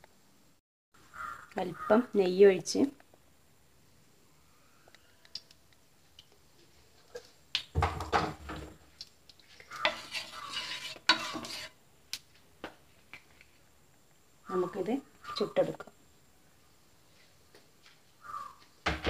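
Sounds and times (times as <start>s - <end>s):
utensil scraping on pan: 9.6s - 11.8s.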